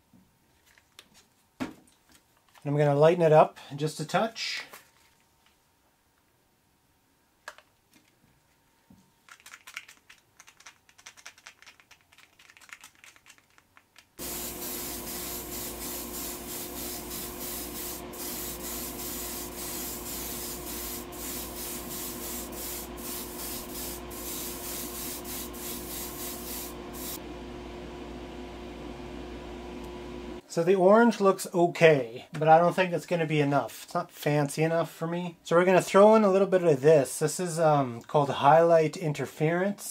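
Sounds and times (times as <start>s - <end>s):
paint bottle rattling: 9.2s - 16.9s
airbrush spraying hiss: 14.2s - 27.2s
steady motor hum: 14.2s - 30.4s.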